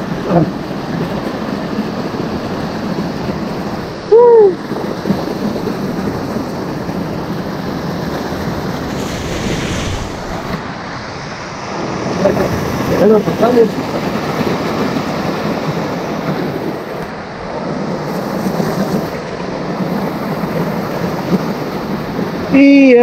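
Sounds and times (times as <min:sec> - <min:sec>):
wind on microphone: 0:03.0 - 0:13.0
stream and waterfall rushing: 0:07.6 - 0:21.0.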